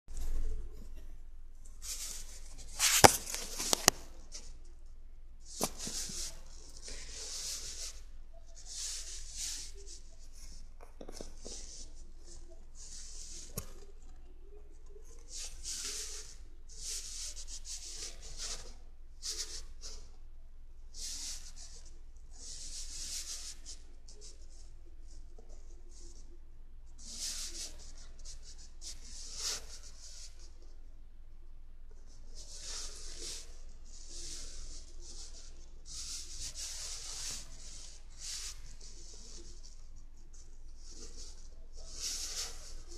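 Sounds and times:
hand rubbing on device: 0:01.7 - 0:04.8, 0:05.4 - 0:14.2, 0:27.0 - 0:30.7, 0:32.0 - 0:42.9
paper rustling: 0:01.8 - 0:04.5.

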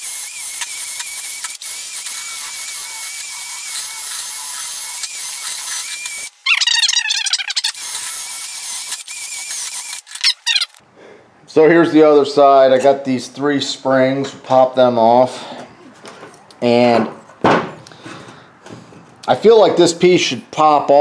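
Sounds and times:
rotary tool wire brush whining: 0:00.0 - 0:10.8
wire brush squealing on metal: 0:03.6 - 0:10.8.

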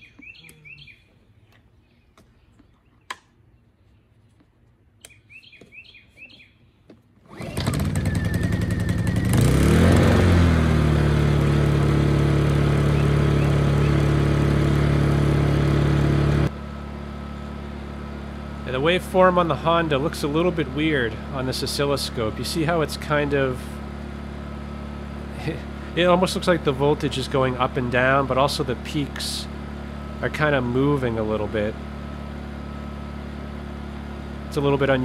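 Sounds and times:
birds chirping: 0:00.0 - 0:06.8, 0:12.7 - 0:14.5
generator engine running: 0:07.2 - 0:35.0.

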